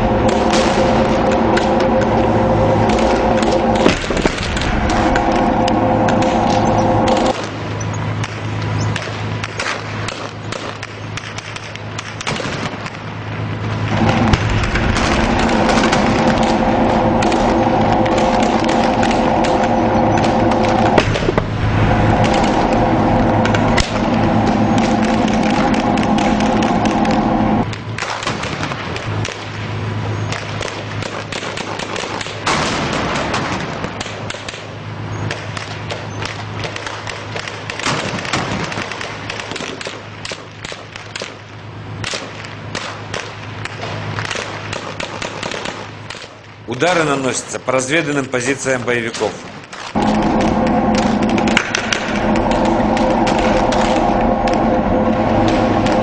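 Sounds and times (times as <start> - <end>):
loud bang: 0.0 - 8.3, 13.7 - 28.8, 50.0 - 56.0
rushing burst of noise: 0.0 - 10.4, 12.9 - 31.0, 49.9 - 56.0
tank engine drone: 0.0 - 56.0
gunfire cracks and bangs: 8.2 - 13.1, 27.9 - 29.6, 30.3 - 34.7, 35.3 - 41.4.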